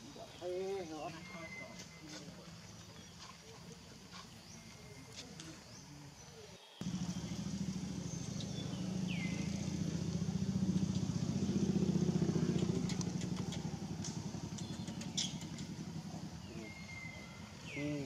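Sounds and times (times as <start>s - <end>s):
motorbike passing by: 6.8s - 18.0s.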